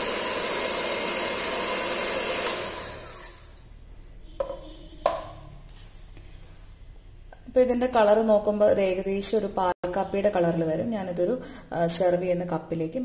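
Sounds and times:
electric hand mixer running: 0.0s - 3.6s.

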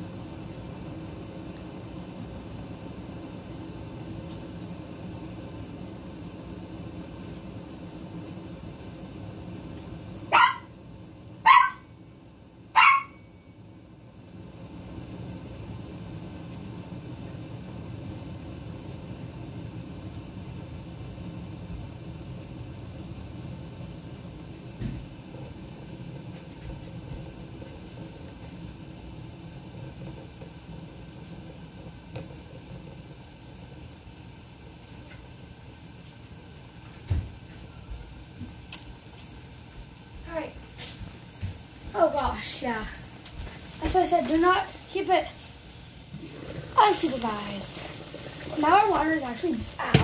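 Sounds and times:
low mechanical hum: 0.0s - 50.0s
pot of water rumbling: 41.2s - 50.0s.

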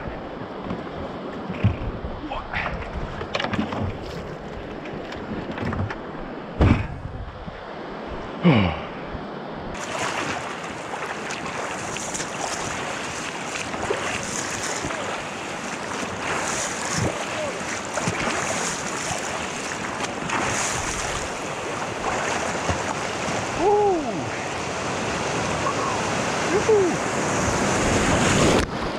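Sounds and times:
river water rushing: 7.6s - 28.9s
water splashing: 9.8s - 28.6s.

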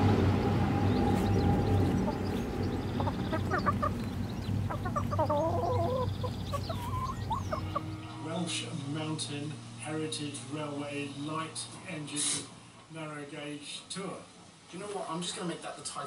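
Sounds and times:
low rumble: 0.0s - 8.4s
hens clucking: 0.8s - 8.7s.

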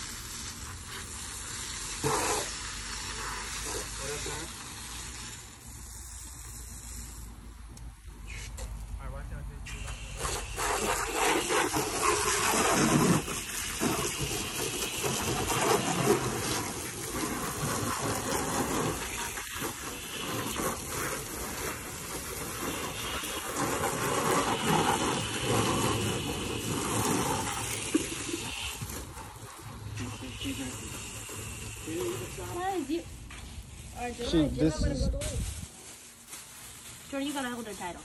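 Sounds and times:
water spray splashing on car: 0.0s - 5.9s, 9.7s - 32.9s.

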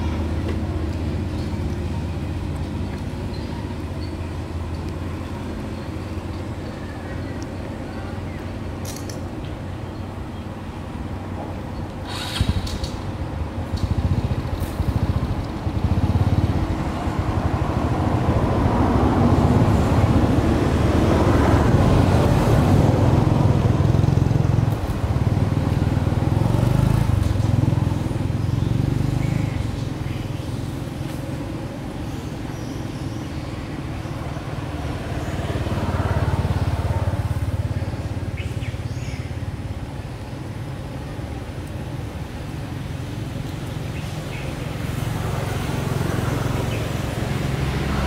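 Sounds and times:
vehicle engine droning: 0.0s - 48.0s.

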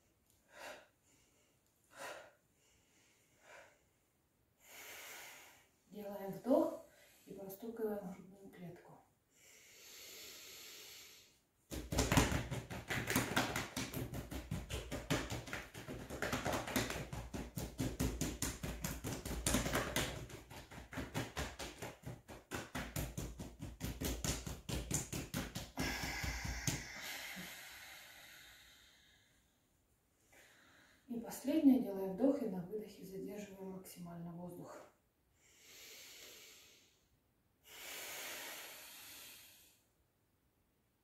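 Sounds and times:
hands tapping on chest: 11.7s - 27.0s
long breath out: 35.4s - 39.9s.

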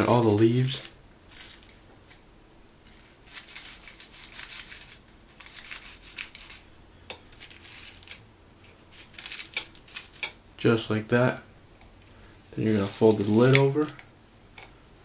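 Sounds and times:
rolling paper rustling and scraping: 0.0s - 2.2s, 2.8s - 6.7s, 7.3s - 10.2s, 12.5s - 14.1s.

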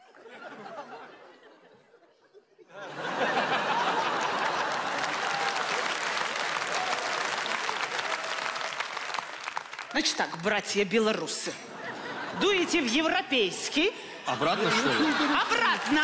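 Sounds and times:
audience laughing softly: 0.0s - 5.6s, 14.2s - 16.0s
loud applause: 2.9s - 10.4s, 14.5s - 16.0s.

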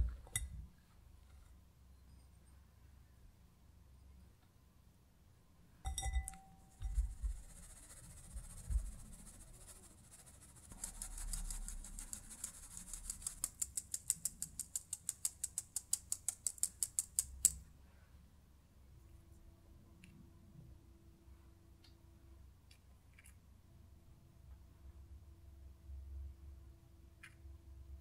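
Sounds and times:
glass clink: 5.8s - 7.0s.

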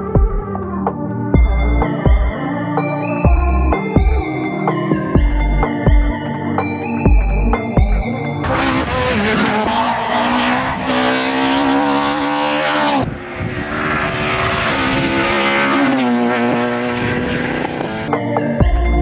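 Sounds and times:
rally car engine revving high: 8.4s - 18.1s.

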